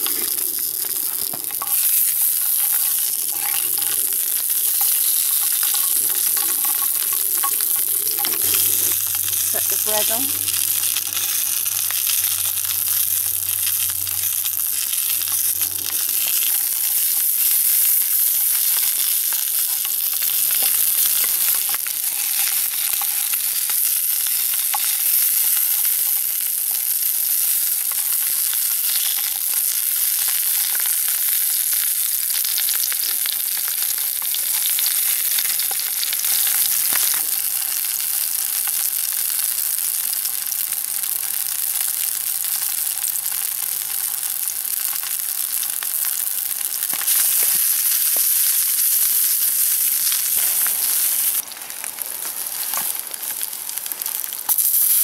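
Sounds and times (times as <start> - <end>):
fat popping: 0.0 - 26.8
sausages sizzling in a frying pan: 0.0 - 55.0.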